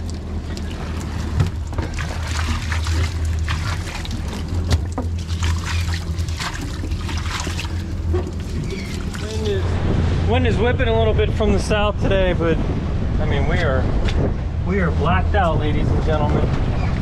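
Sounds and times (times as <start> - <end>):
trickling water: 0.0 - 10.0
fish flopping on boat deck: 0.0 - 10.1
steady low hum: 0.0 - 17.0.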